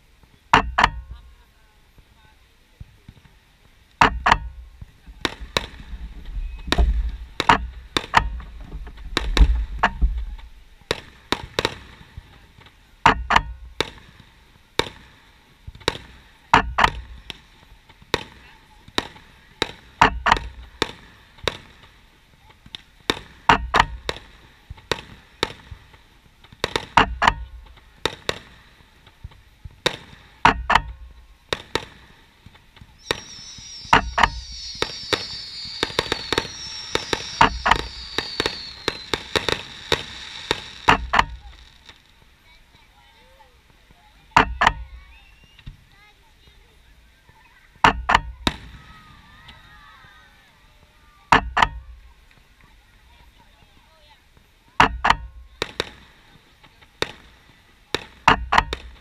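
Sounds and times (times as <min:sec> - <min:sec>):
high hiss: 0:00.0 - 0:59.0
fireworks shells banging: 0:04.0 - 0:15.1, 0:22.6 - 0:42.2, 0:58.0 - 0:59.0
heavy low rumble: 0:05.7 - 0:10.8.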